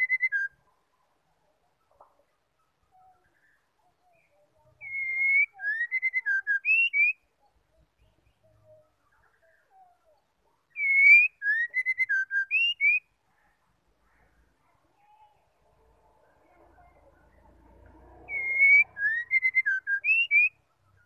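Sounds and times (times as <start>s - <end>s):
bird singing whistled phrase: 0.0s - 0.6s, 4.2s - 7.2s, 10.7s - 13.0s, 18.3s - 20.6s.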